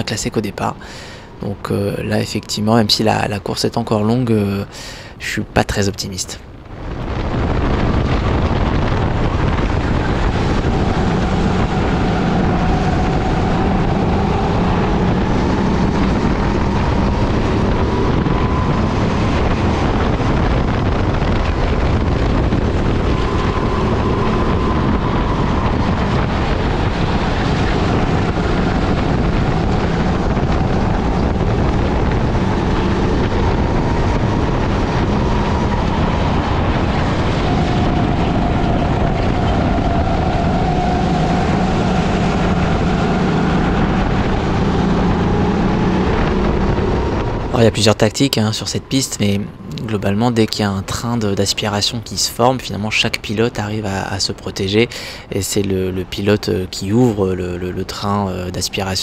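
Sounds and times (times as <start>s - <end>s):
wind noise on microphone: 0.0s - 59.0s
kart engine running: 7.0s - 47.6s.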